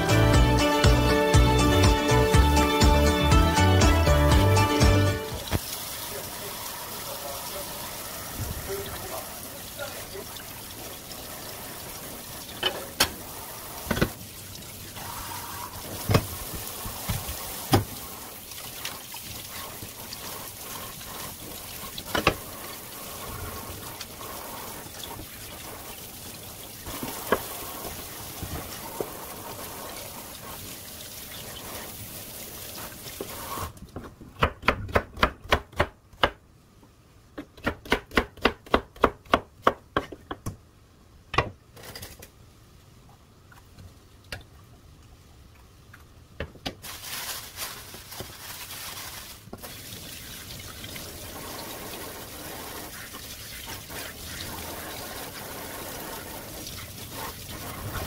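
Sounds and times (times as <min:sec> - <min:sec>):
knife chopping on wooden board: 0:34.4 - 0:36.4.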